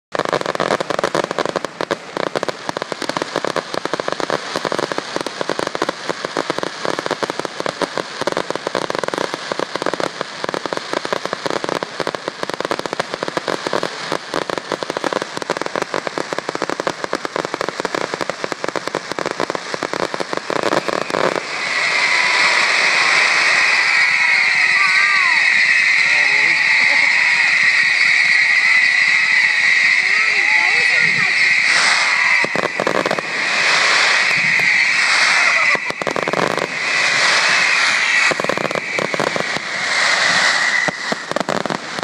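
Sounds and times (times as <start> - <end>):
fireworks crackling and banging: 0.1 - 42.0
steady rushing noise: 9.4 - 42.0.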